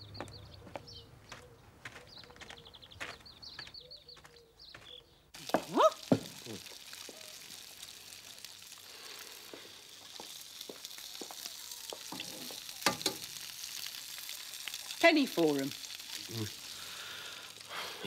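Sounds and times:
food sizzling in a frying pan: 5.4s - 18.0s
cutlery and crockery clinking: 12.1s - 13.3s.

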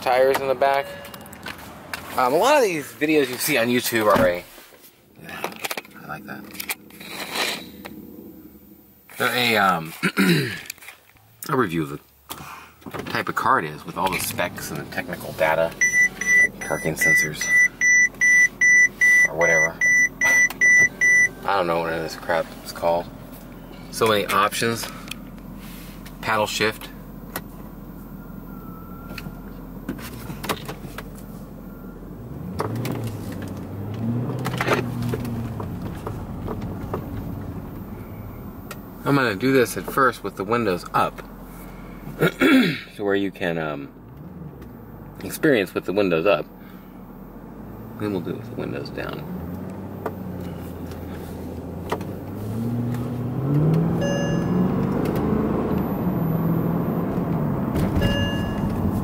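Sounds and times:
car engine hum: 0.0s - 10.0s, 10.6s - 59.0s
road noise: 0.0s - 59.0s
brief electronic tone: 0.8s - 1.4s, 15.8s - 21.6s, 28.0s - 29.5s, 54.0s - 54.9s, 58.0s - 59.0s.

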